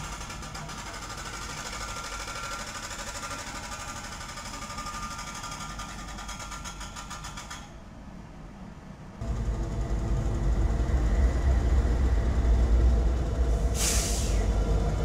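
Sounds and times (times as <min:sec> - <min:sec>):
freight cars rolling past: 0:00.0 - 0:15.0
diesel locomotives passing: 0:07.8 - 0:15.0.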